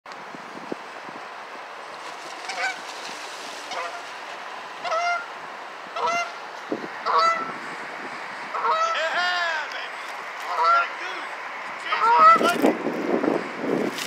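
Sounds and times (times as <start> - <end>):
goose honking: 2.4 - 2.9, 3.7 - 4.1, 4.8 - 6.4, 7.0 - 7.5, 8.5 - 11.2, 11.8 - 12.4.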